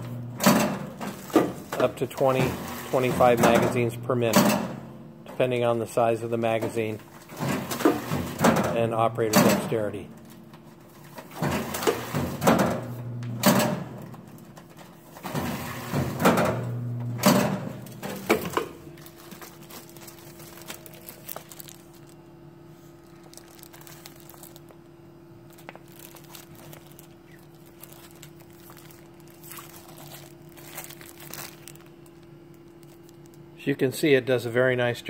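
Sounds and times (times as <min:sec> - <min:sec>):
machine hum: 0:00.0 - 0:35.0
plastic film crinkling: 0:18.2 - 0:33.6
wrapping machine motor bursts: 0:25.4 - 0:33.4.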